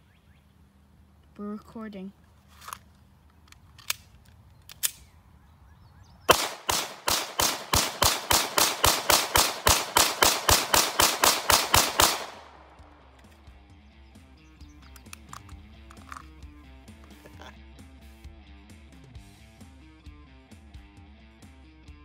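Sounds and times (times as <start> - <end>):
rapid handgun shots: 6.3 - 13.1.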